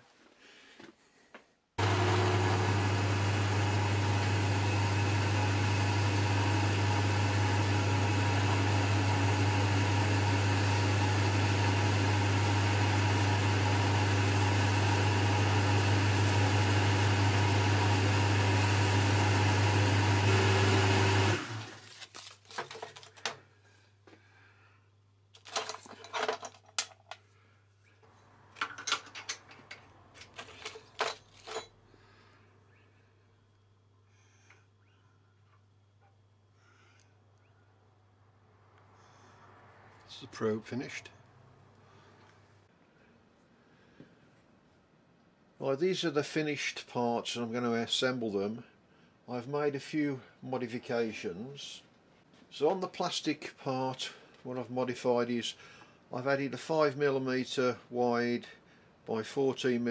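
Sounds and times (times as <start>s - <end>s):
metalworking lathe humming: 1.8s - 21.8s.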